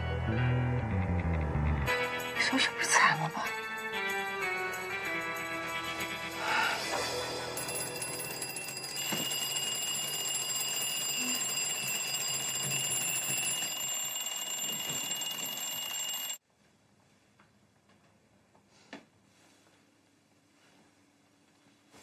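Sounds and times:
alarm clock ringing: 5.0 - 16.4.

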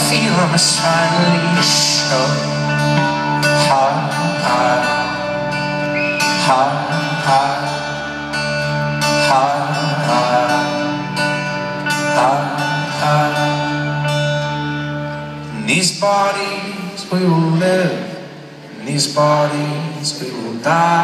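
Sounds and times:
person singing: 0.0 - 14.8
acoustic string instruments: 0.0 - 21.0
live folk-rock band music: 0.0 - 21.0.

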